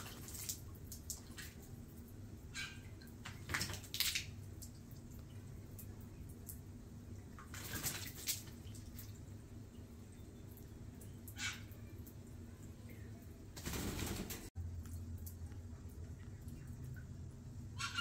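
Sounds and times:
water splashing in birdbath: 0.0 - 18.0
steady low hum: 4.3 - 18.0.

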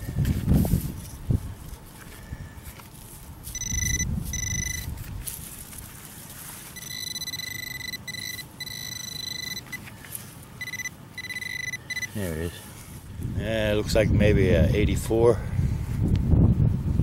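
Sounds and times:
wind rumble on microphone: 0.0 - 6.0, 13.0 - 17.0
pinpointer electronic tones: 3.5 - 4.9, 6.7 - 9.9, 10.6 - 12.2.

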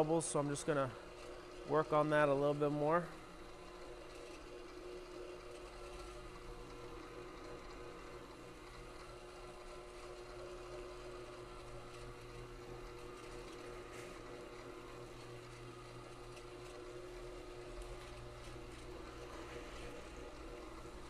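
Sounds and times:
floor buffer motor hum: 0.0 - 21.0.

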